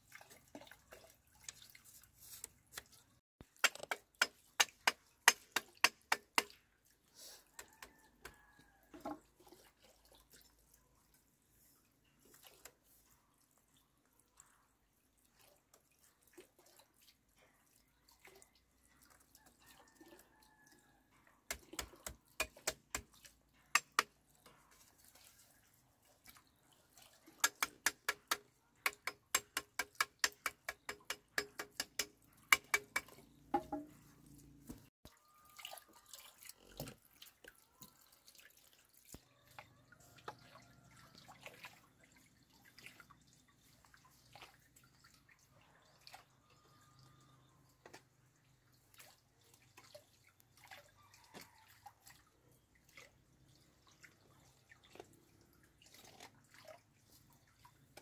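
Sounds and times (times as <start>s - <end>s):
hollow knocks of bamboo: 3.4s - 6.6s, 27.4s - 34.0s.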